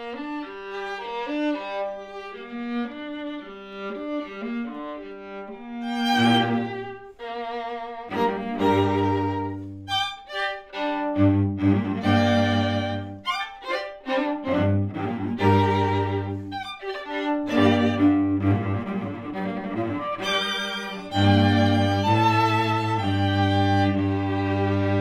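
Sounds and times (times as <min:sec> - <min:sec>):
string quartet playing: 0:00.0 - 0:25.0.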